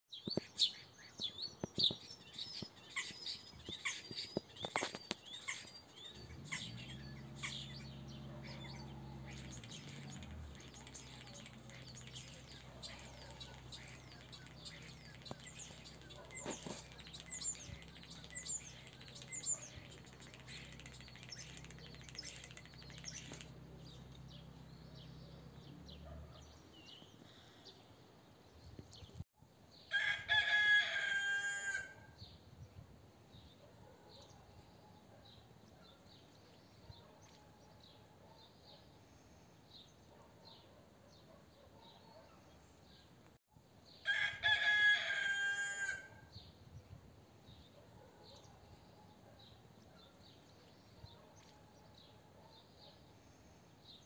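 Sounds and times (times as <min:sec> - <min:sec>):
birds chirping: 0:00.2 - 0:29.2
rooster crowing: 0:29.9 - 0:32.1, 0:44.0 - 0:46.3.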